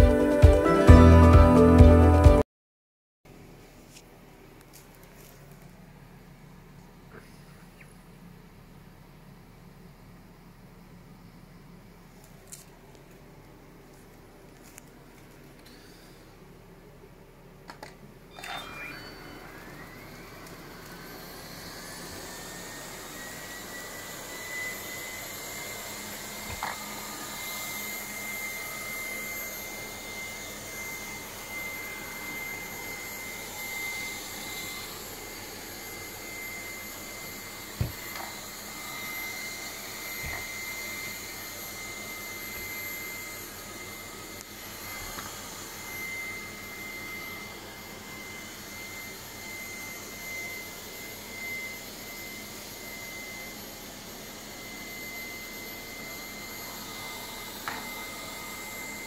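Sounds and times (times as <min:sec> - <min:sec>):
robot vacuum cleaner whirring: 0:17.7 - 0:59.0.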